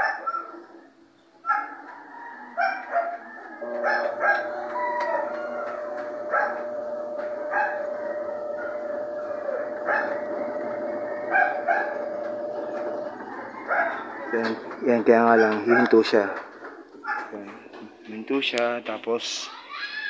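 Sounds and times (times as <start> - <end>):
dog barking: 0.0 - 0.6, 1.4 - 1.9, 2.6 - 5.3, 6.2 - 6.8, 7.4 - 7.9, 9.8 - 10.2, 11.3 - 12.1, 13.6 - 14.1, 15.4 - 16.0, 17.0 - 17.4
washing machine spinning whine: 3.6 - 15.4.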